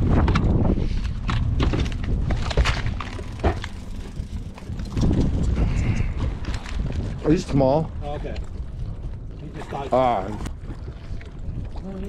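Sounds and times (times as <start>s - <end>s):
knocks and clatter of gear: 0.0s - 7.3s
wind buffeting microphone: 0.0s - 12.0s.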